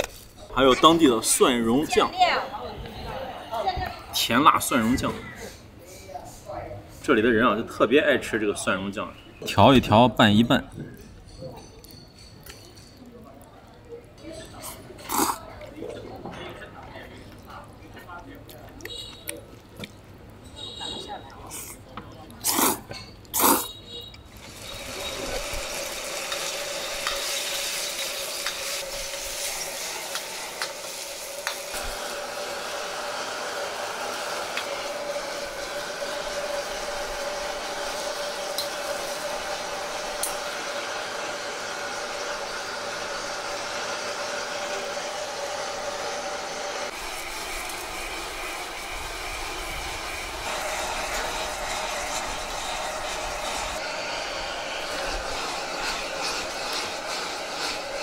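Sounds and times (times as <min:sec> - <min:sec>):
slurping noodles: 0:14.6 - 0:15.5, 0:22.4 - 0:23.8
food sizzling in a wok: 0:24.3 - 0:58.0.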